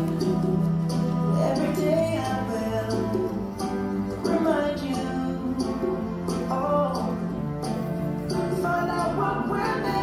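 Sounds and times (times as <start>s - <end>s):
country song with guitar: 0.0s - 10.0s.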